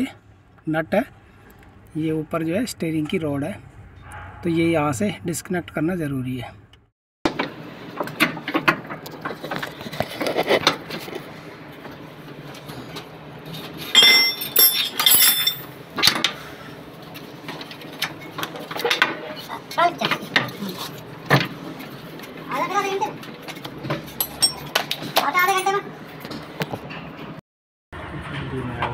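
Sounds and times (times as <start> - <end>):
hand tools clinking on metal: 13.8 - 15.7, 24.0 - 25.8
ringing metallic clinks: 13.9 - 15.7.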